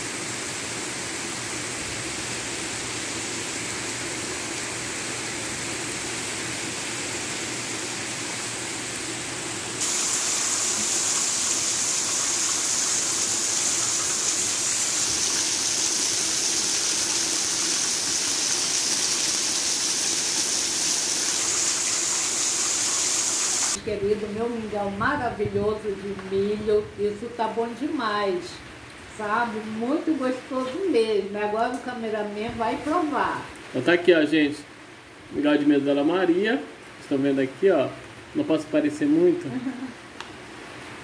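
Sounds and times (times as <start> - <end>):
heavy rain pouring: 0.0 - 23.8.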